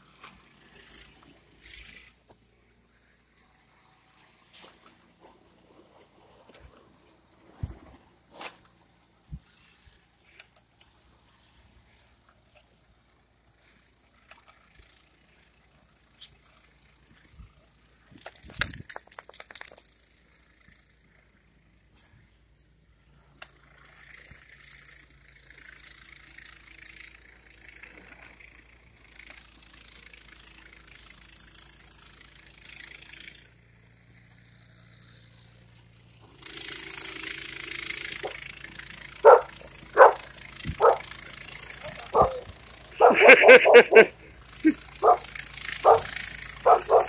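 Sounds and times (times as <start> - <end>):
snowblower engine hum: 0.0 - 18.6, 19.4 - 47.0
dog barking: 39.2 - 41.0, 41.9 - 44.1, 45.0 - 47.0.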